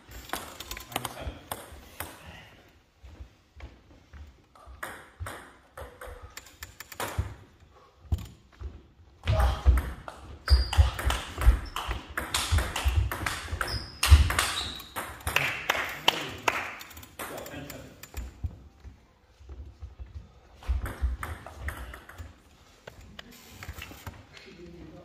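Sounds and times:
footsteps on wooden floor: 2.9 - 4.5, 18.3 - 21.2
shoe squeaks: 10.4 - 11.0, 13.5 - 15.0.

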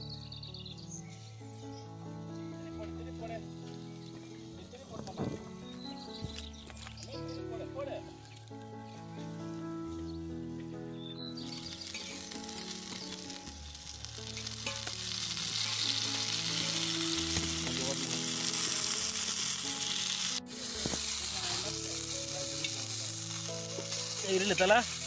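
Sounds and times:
chicken sizzling in oil: 11.2 - 25.0
tongs scraping pan: 14.3 - 16.9.

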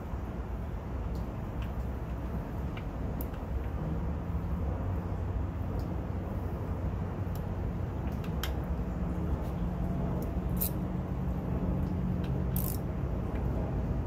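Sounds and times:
steady low rumble: 0.0 - 14.0
sharp mechanical clicks: 12.2 - 12.8.

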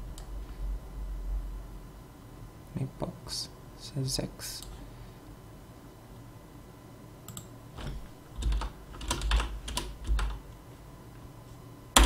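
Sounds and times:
keyboard typing: 7.3 - 10.4.

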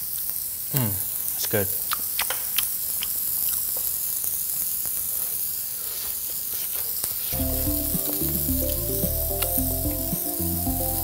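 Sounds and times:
food sizzling on a griddle: 0.0 - 11.0
background music low notes: 7.4 - 11.0.

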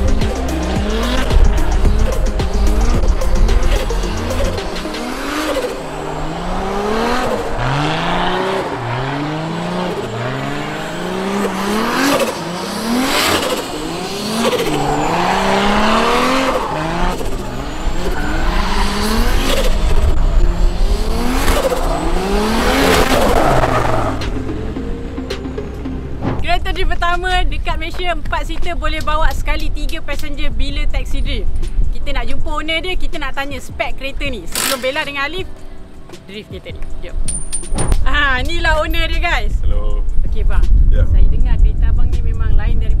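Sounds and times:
car engine revving: 0.0 - 27.8
tyres squealing: 3.7 - 19.9.

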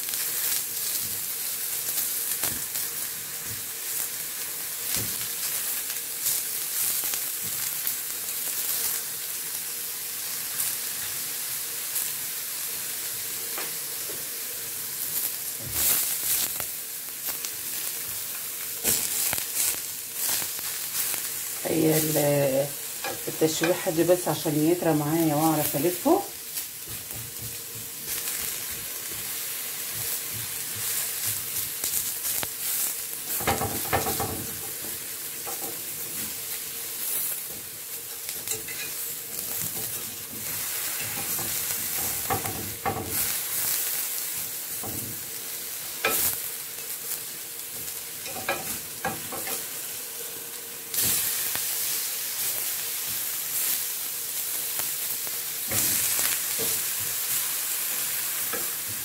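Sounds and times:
eggplant sizzling on grill pan: 0.0 - 59.0
metal fork scraping pan: 38.4 - 39.0.

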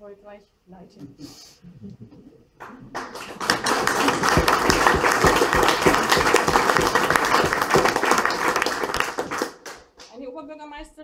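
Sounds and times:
audience applauding: 2.6 - 10.1.

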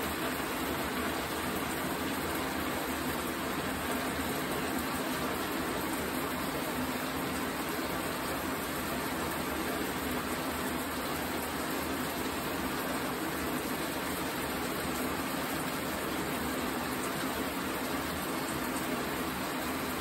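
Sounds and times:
shower running: 0.0 - 20.0.

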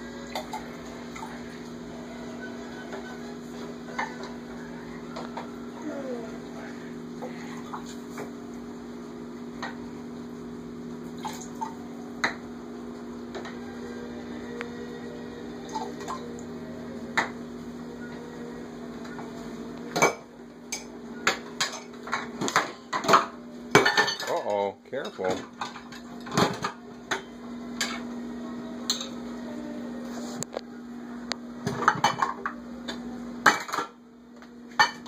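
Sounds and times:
dishes clinking in metal sink: 19.9 - 28.0.

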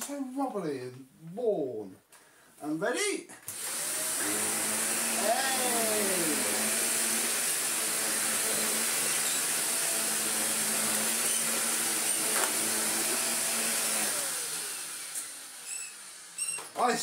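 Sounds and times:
upright vacuum cleaner running: 3.5 - 17.0
motor winding down whine: 3.6 - 7.2.

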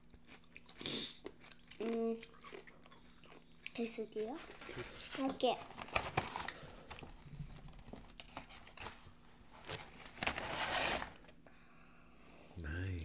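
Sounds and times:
crinkly rustle: 7.6 - 11.2.

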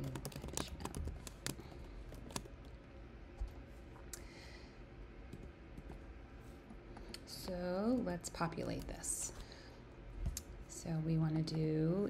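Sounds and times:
computer keyboard typing: 0.0 - 2.8.

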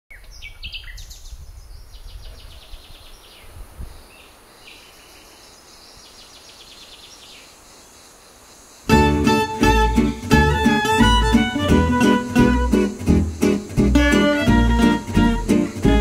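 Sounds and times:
small birds chirping and trilling: 0.1 - 8.9.

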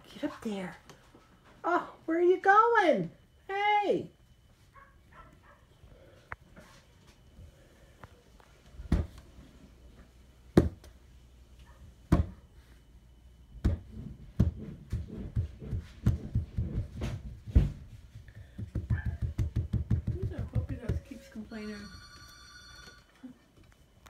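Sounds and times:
hand patting and scratching a mat: 13.6 - 21.2.

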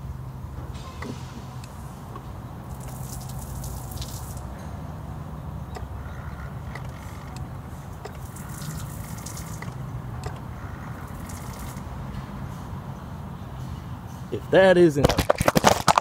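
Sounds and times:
gasoline spraying and splattering: 0.8 - 4.6, 6.6 - 11.9.

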